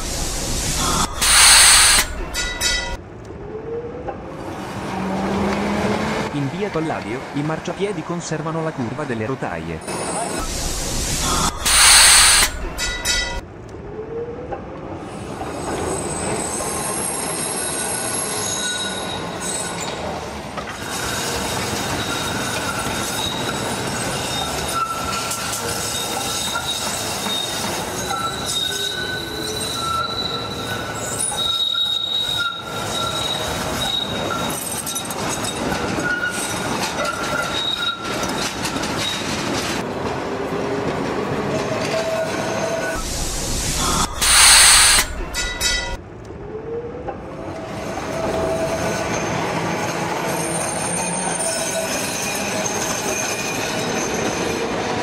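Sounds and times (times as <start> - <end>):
tram wheels squealing: 0.0 - 3.0, 9.8 - 13.4, 15.1 - 39.9, 40.8 - 46.0, 47.6 - 55.0
tram rumbling on rails: 0.0 - 55.0
loud burst: 43.0 - 45.4.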